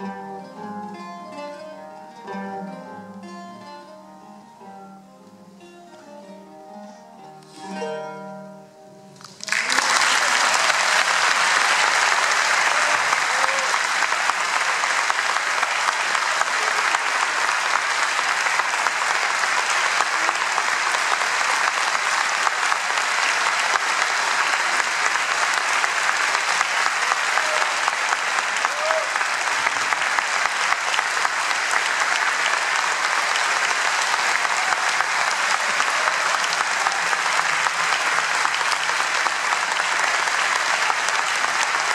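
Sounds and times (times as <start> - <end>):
lute plucked notes: 0.0 - 9.2
audience applause: 9.2 - 41.9.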